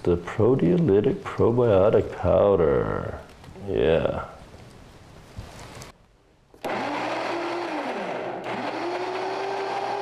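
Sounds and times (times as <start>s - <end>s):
blender motor whining: 6.6s - 10.0s.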